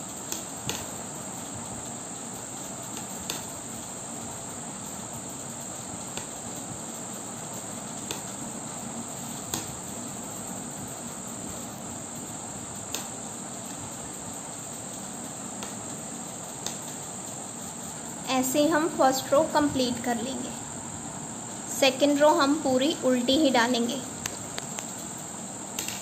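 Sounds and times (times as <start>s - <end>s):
steady high-pitched hiss: 0.0s - 26.0s
knitting needles clicking: 25.8s - 26.0s.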